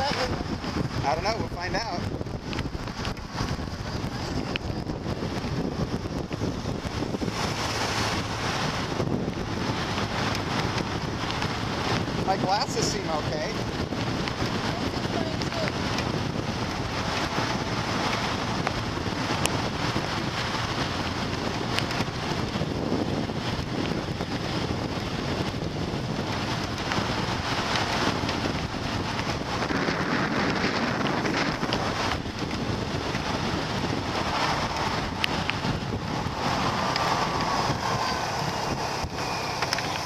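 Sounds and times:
motorbike engine: 0:00.0 - 0:40.0
road noise: 0:00.0 - 0:40.0
wind rushing over microphone: 0:00.0 - 0:40.0.

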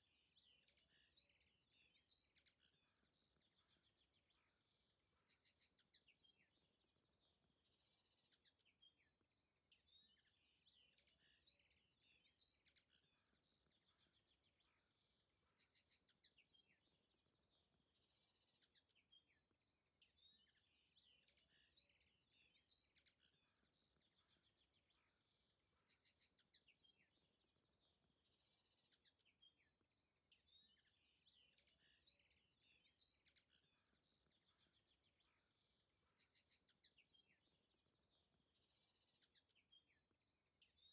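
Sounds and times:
faint songbirds chirping: 0:00.0 - 0:40.9.

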